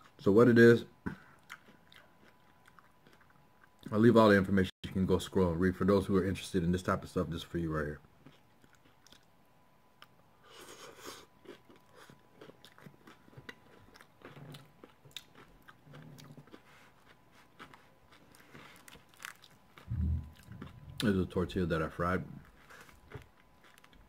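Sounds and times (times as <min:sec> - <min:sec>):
crunching and chewing food: 0:00.0 - 0:04.4, 0:07.1 - 0:24.0
wet chewing clicks: 0:11.4 - 0:21.2.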